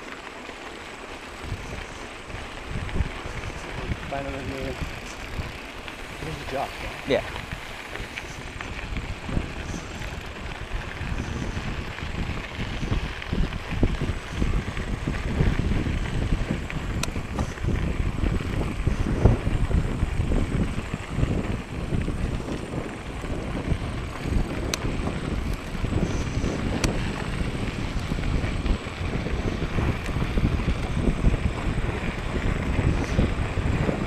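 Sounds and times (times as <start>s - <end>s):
tyres rolling over gravel: 0.0s - 34.0s
wind buffeting microphone: 0.0s - 34.0s.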